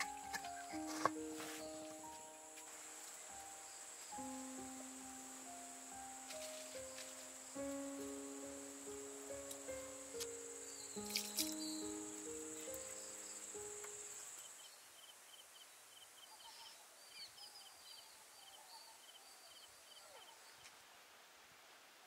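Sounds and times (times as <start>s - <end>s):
background music with held notes: 0.0s - 14.4s
high chirping calls: 0.0s - 14.7s
lower wildlife calls: 0.0s - 14.7s.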